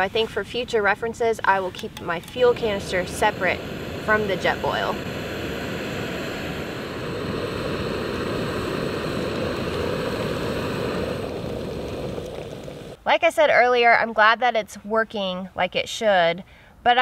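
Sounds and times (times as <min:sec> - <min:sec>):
gas stove burner hissing: 0:00.0 - 0:13.0.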